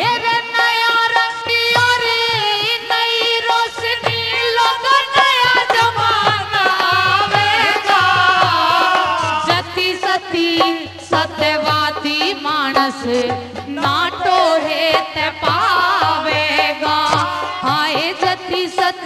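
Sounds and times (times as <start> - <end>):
hand drum beats: 0.0 - 19.0.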